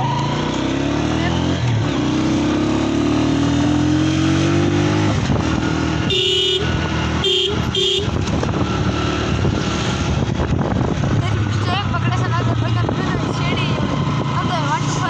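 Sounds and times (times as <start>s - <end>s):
motorcycle engine running: 0.0s - 15.0s
vehicle horn honking: 6.0s - 8.3s.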